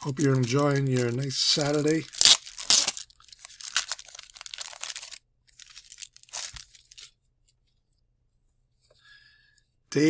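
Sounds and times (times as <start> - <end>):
paper wrapper tearing and crinkling: 0.0 - 7.1.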